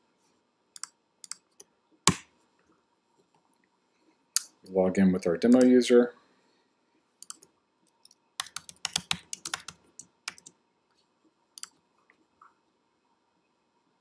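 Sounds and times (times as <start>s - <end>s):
computer keyboard typing: 7.2s - 10.5s.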